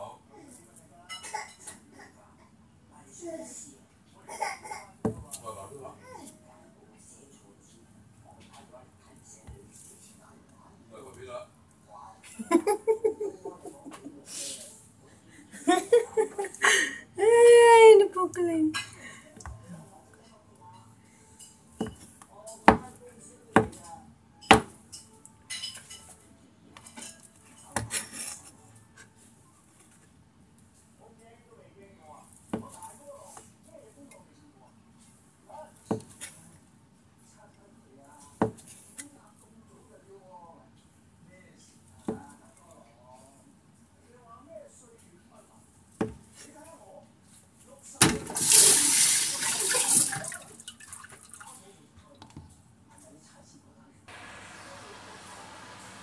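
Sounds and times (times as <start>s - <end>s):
tap water running: 48.3s - 51.4s, 54.1s - 56.0s.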